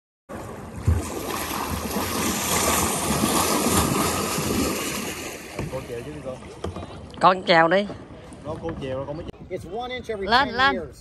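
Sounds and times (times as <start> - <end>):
water splashing along hull: 0.3 - 10.6
low thump: 5.5 - 5.9.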